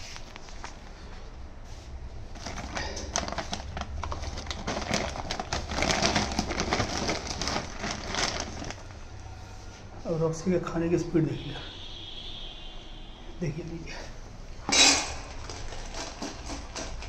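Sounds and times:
plastic packet crinkling: 2.3 - 9.0, 15.2 - 17.0.

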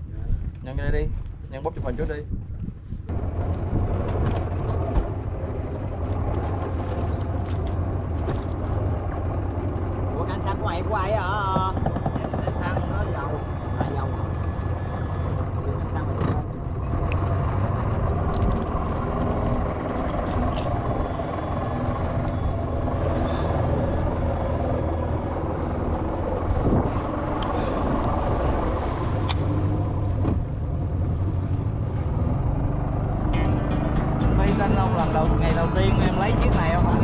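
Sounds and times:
motorboat engine running: 3.1 - 37.0.

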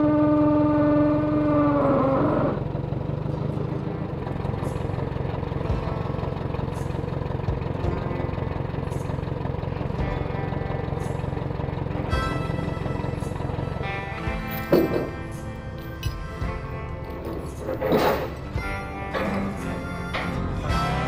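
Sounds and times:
vehicle horn: 0.0 - 2.6
vehicle engine running: 0.0 - 21.0.

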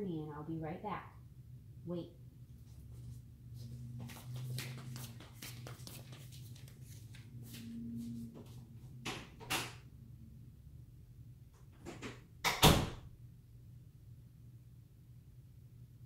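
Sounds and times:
sandal footsteps on tile floor: 3.6 - 7.7.

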